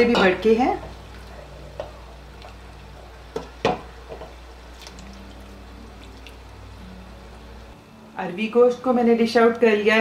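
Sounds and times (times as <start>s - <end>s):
ladle scooping thick liquid: 4.7s - 6.5s.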